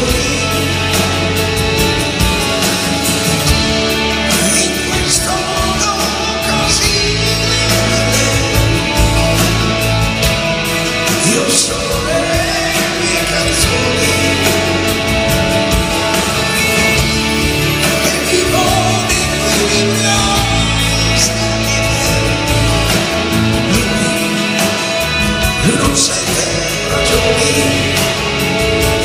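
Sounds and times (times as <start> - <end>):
bass: 0.0 - 29.0
drum kit: 0.0 - 29.0
electric guitars: 0.0 - 29.0
keyboards: 0.0 - 29.0.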